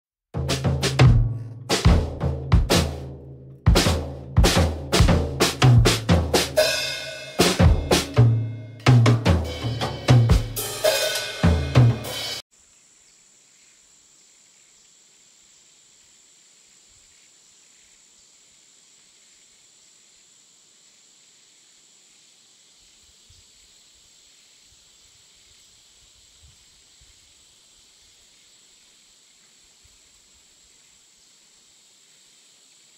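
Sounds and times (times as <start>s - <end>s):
soft hiss: 12.1s - 32.9s.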